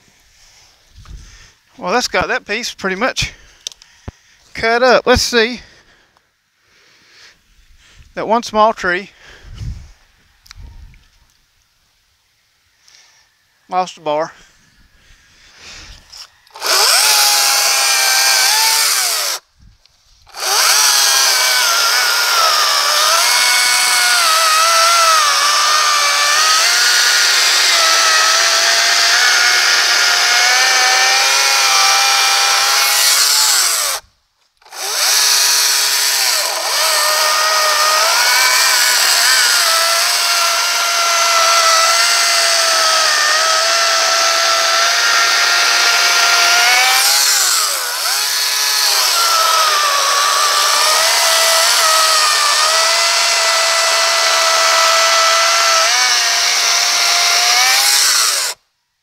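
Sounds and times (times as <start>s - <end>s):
electric chainsaw cutting wood: 16.2s - 19.4s, 20.3s - 58.6s.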